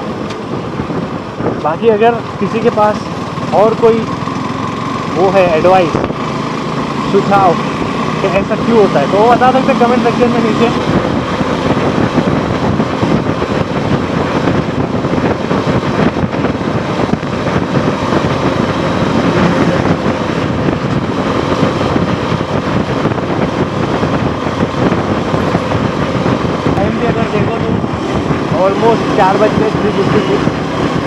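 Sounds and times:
motorcycle engine cruising: 0:00.0 - 0:31.0
wind rushing on microphone: 0:00.0 - 0:31.0.

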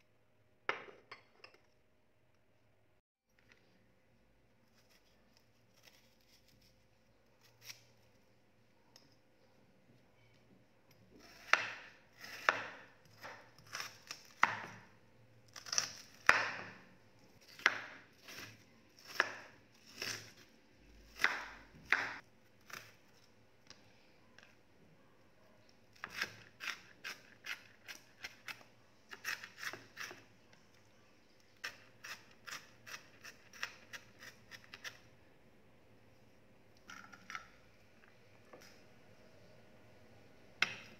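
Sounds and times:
knife chopping onion on wooden board: 0:11.2 - 0:14.9, 0:15.6 - 0:16.9, 0:17.5 - 0:20.4, 0:21.1 - 0:22.9, 0:40.6 - 0:40.9.

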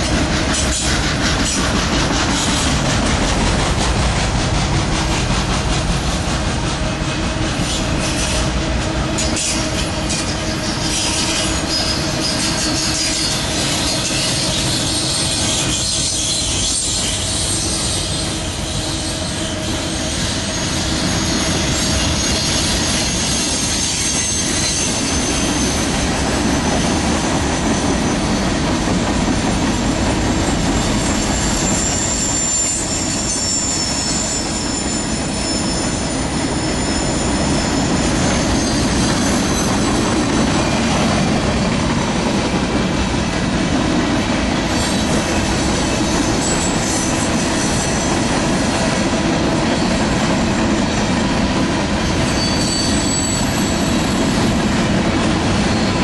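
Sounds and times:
train wheels rumbling on rails: 0:00.0 - 0:56.0
high-pitched wheel squeal: 0:09.2 - 0:26.0, 0:30.4 - 0:40.8, 0:46.0 - 0:48.2, 0:52.2 - 0:54.4.

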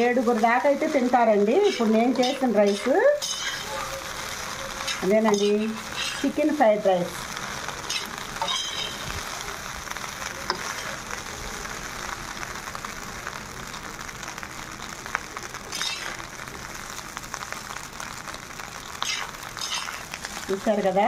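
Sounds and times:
rice sizzling in a pan: 0:00.0 - 0:21.0
metal spatula scraping pan: 0:01.6 - 0:03.9, 0:04.8 - 0:06.4, 0:07.9 - 0:09.1, 0:15.7 - 0:16.2, 0:19.0 - 0:20.1.

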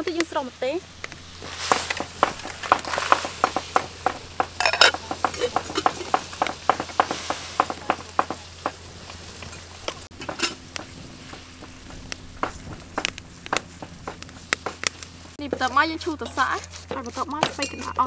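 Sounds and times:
chillies crackling in pan: 0:00.0 - 0:18.0
sizzle: 0:00.0 - 0:18.0
metal spatula scraping wok: 0:01.3 - 0:07.6, 0:15.6 - 0:18.0.

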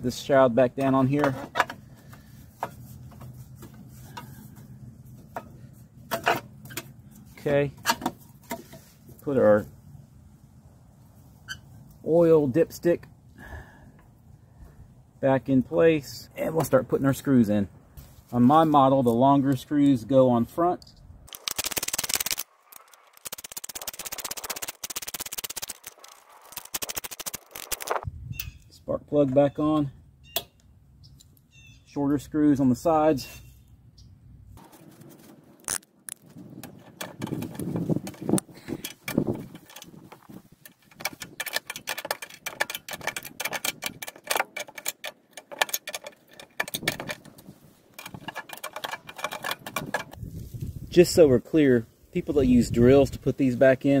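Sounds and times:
hand ratchet clicking: 0:21.3 - 0:28.0, 0:40.6 - 0:47.3, 0:48.0 - 0:50.2.

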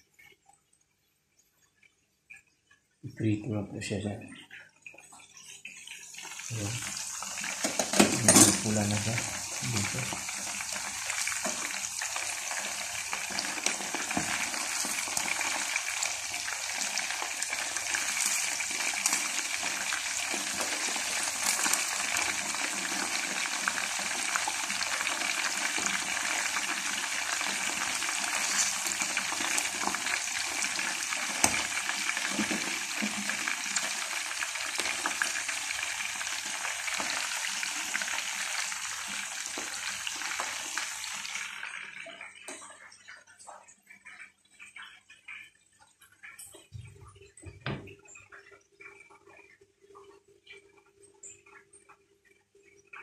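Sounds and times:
chicken deep-frying in oil: 0:01.5 - 0:53.0
oil crackles: 0:06.5 - 0:41.9.

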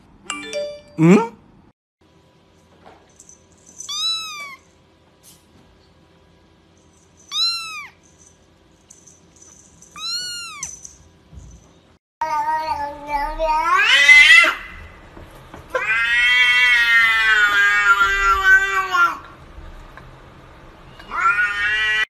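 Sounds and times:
kitten mewing: 0:03.9 - 0:04.6, 0:07.3 - 0:08.0, 0:10.0 - 0:10.8.

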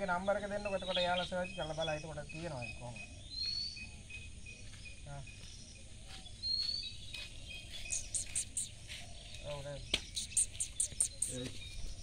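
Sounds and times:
rising bird calls: 0:07.7 - 0:09.3, 0:10.0 - 0:11.8
short high insect chirp: 0:07.8 - 0:11.8
very high pulses: 0:07.9 - 0:08.8, 0:10.2 - 0:11.4.

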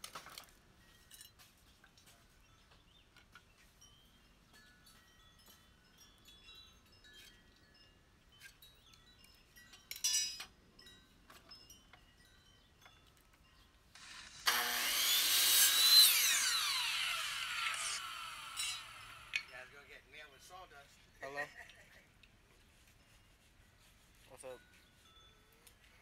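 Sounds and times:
miter saw motor whining: 0:14.0 - 0:19.6.

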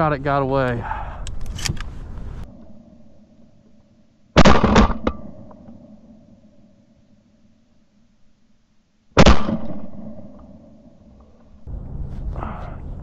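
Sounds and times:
shotgun shot with echo: 0:04.4 - 0:05.4, 0:09.2 - 0:10.4.

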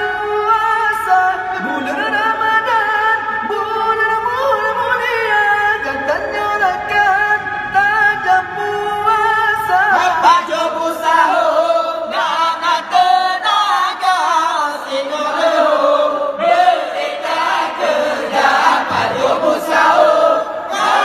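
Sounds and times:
group of voices chanting: 0:14.9 - 0:21.0.

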